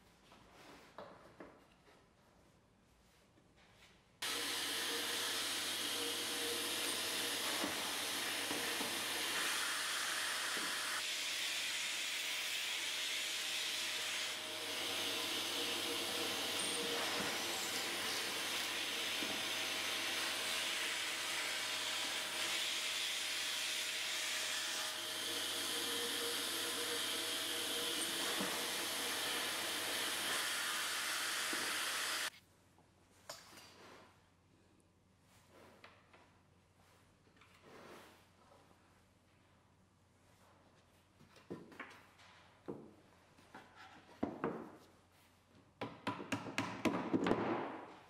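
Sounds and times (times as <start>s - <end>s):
cordless drill boring into wood: 4.2s - 11.1s, 12.8s - 22.9s, 24.9s - 32.3s
dust extractor hissing: 4.2s - 12.1s, 14.4s - 22.8s, 24.9s - 32.3s.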